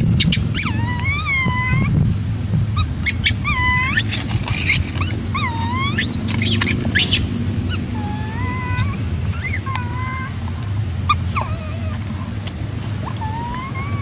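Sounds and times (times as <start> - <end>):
baby monkey crying: 0.0 - 1.9, 2.8 - 14.0.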